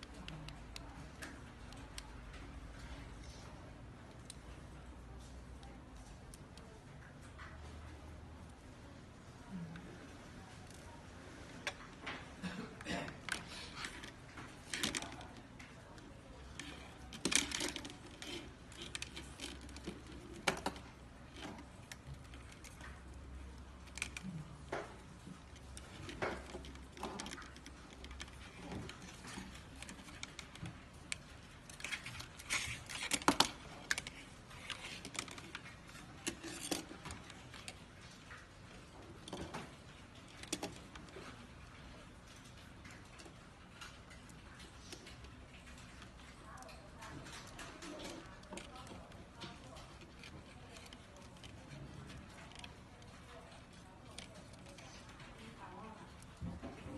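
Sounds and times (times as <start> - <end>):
plastic clicks taps and rustles: 11.6 - 56.9.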